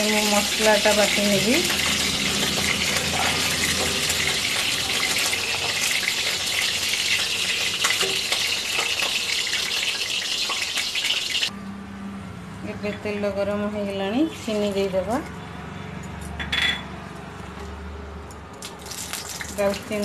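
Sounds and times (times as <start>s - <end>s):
oil sizzling: 0.0s - 11.5s, 18.8s - 20.0s.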